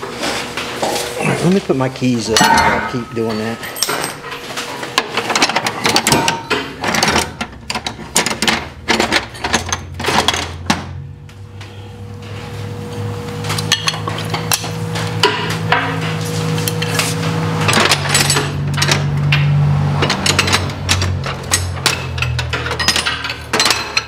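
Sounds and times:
low steady hum: 0:00.9 - 0:19.2.

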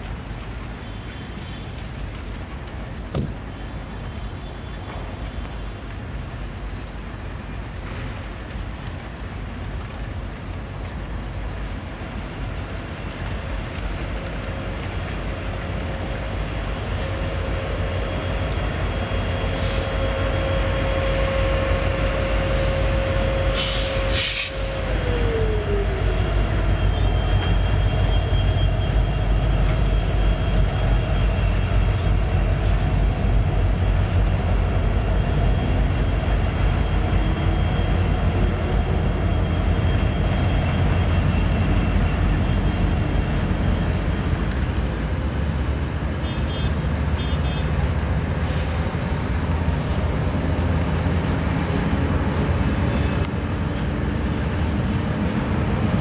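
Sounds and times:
locomotive engine rumble: 0:00.0 - 0:56.0
train cars rolling on rails: 0:00.0 - 0:56.0
steady whine: 0:13.4 - 0:45.2.

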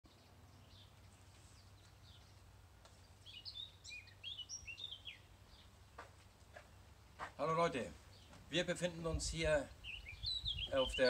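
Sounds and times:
songbird chirping and whistling: 0:03.2 - 0:05.7, 0:09.7 - 0:11.0.

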